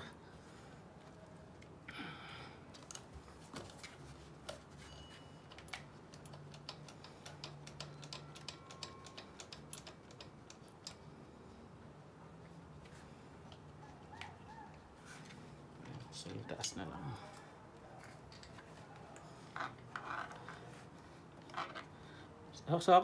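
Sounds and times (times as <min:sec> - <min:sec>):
hand tool clicking: 0:05.5 - 0:11.0.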